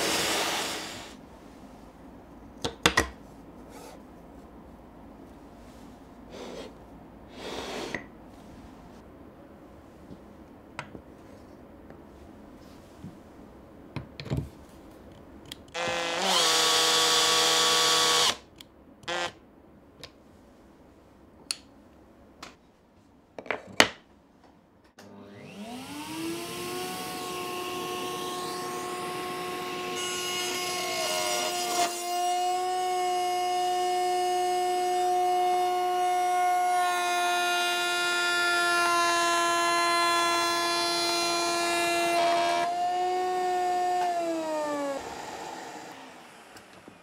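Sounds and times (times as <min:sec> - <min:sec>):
router motor whining: 0:15.8 - 0:18.4, 0:19.1 - 0:19.3, 0:25.1 - 0:47.0.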